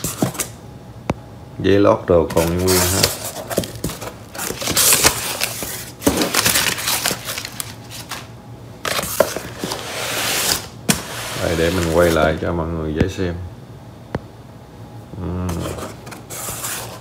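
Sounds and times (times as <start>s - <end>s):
packing paper rustling: 2.3s - 12.4s.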